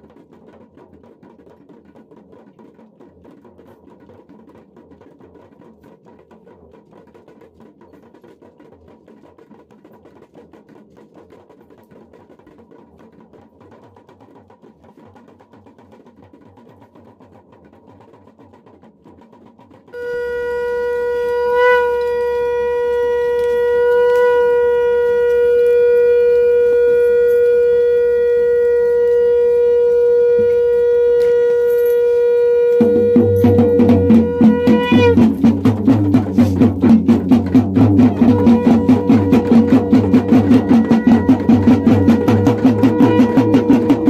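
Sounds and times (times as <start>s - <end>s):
fast rhythmic drumming: 0.0s - 44.0s
conch shell blown: 20.0s - 44.0s.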